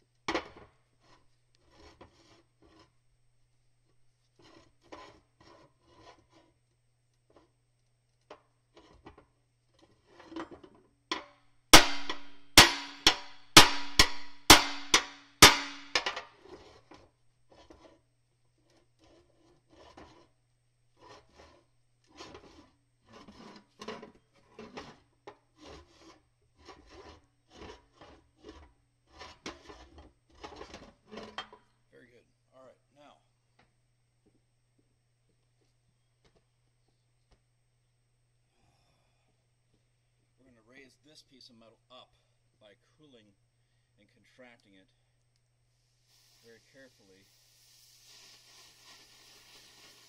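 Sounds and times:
block scraping on steel: 0:00.4 - 0:03.0, 0:04.4 - 0:06.6, 0:08.7 - 0:31.6
hammer blows on steel: 0:11.8 - 0:16.1.

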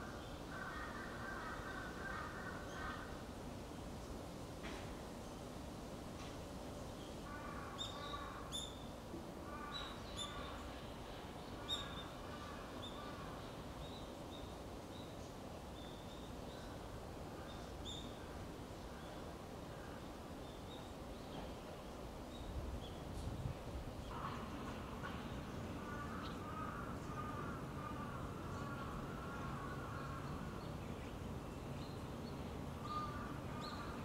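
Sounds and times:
outdoor background hum: 0:00.0 - 0:34.0
crows cawing: 0:00.5 - 0:03.2, 0:07.3 - 0:08.5, 0:25.8 - 0:30.4.

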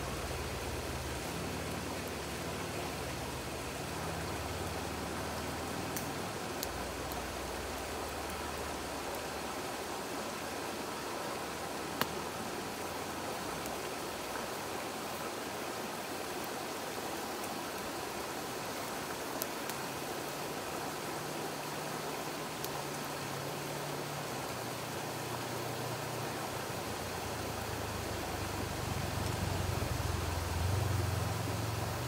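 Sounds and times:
river rushing: 0:00.0 - 0:32.0
campfire crackling pops: 0:05.4 - 0:09.2, 0:11.9 - 0:12.2, 0:28.9 - 0:29.8.

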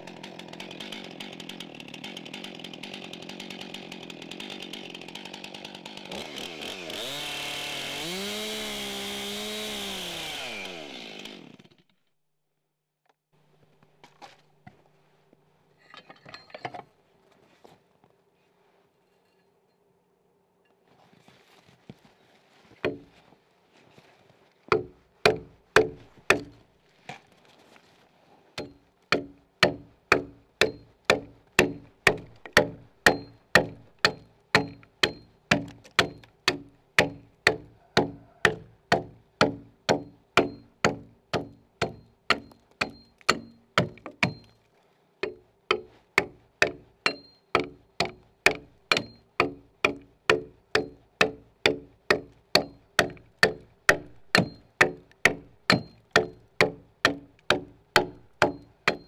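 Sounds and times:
axe chopping log: 0:24.7 - 0:26.6, 0:28.6 - 0:44.5, 0:45.2 - 0:59.0.

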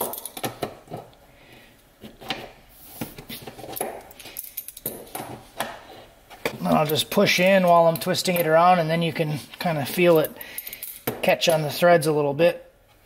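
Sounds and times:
small metallic clinks: 0:10.2 - 0:11.1.

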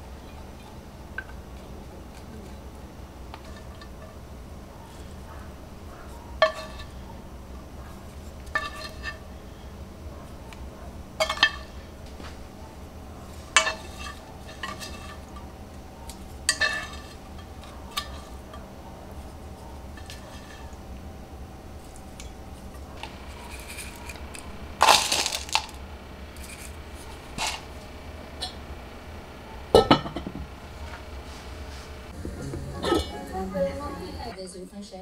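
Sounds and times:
chopsticks clinking on iron pans: 0:06.0 - 0:07.1, 0:11.2 - 0:11.9, 0:13.3 - 0:18.7.

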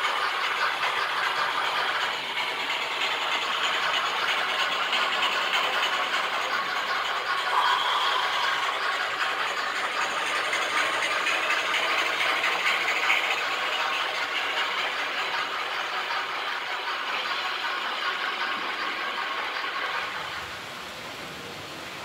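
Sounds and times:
locomotive motors humming: 0:00.0 - 0:22.0
model train wheels rattling on rail: 0:00.0 - 0:22.0.

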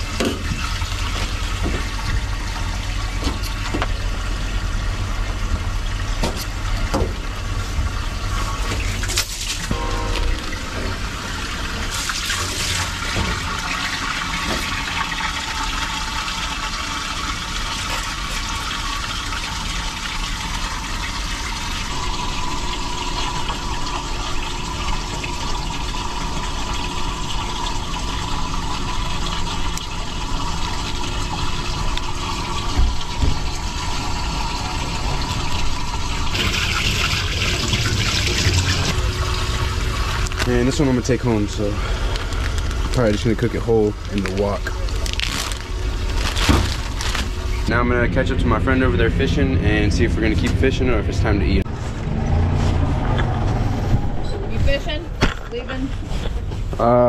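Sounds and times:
running water rushing: 0:00.0 - 0:51.6.

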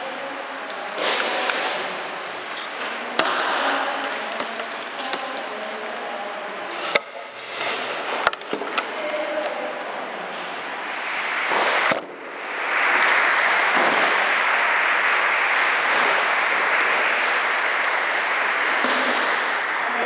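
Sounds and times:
audience clapping: 0:10.6 - 0:20.0.

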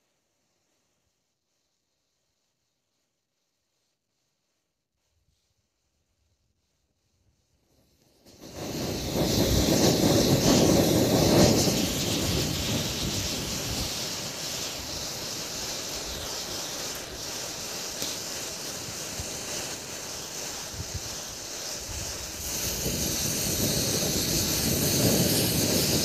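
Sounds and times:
matchsticks flaring with rushing hiss: 0:07.4 - 0:26.0.

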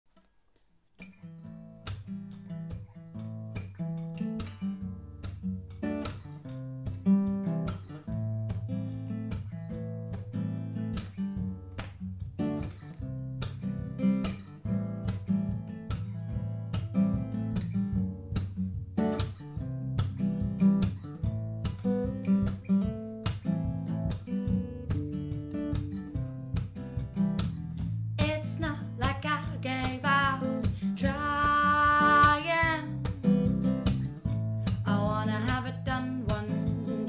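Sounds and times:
acoustic guitar: 0:01.0 - 0:37.0
bass guitar: 0:02.8 - 0:37.0
woman singing: 0:28.2 - 0:33.6, 0:34.6 - 0:37.0.

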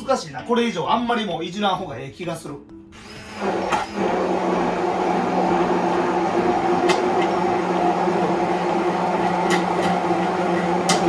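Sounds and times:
hand blender humming: 0:03.0 - 0:11.0.

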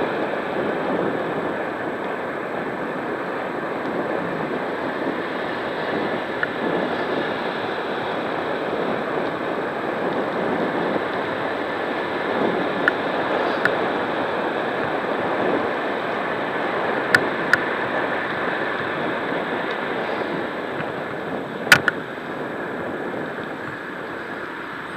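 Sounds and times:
tyres rolling on tarmac: 0:00.0 - 0:24.9
wind over microphone: 0:00.0 - 0:24.9
sharp clicks: 0:21.7 - 0:22.0.

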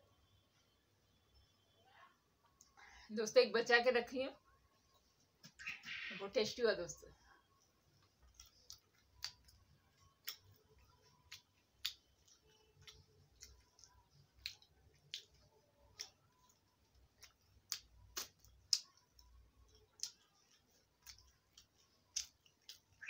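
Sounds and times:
chewing mouth clicks and smacks: 0:08.0 - 0:23.0.

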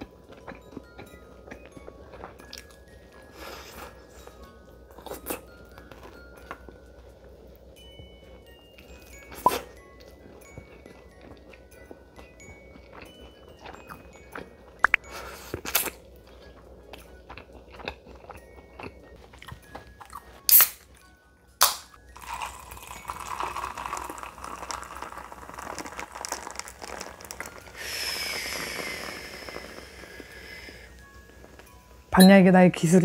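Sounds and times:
crunching and chewing food: 0:00.0 - 0:31.9
fizzy drink poured into glass: 0:22.2 - 0:29.2.

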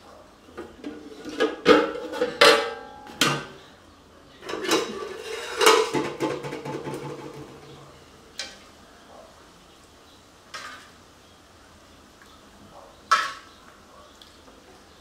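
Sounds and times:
ladle clattering against pot: 0:00.6 - 0:03.6, 0:04.4 - 0:08.6
pot lid clanking: 0:00.6 - 0:03.6, 0:04.4 - 0:07.8.

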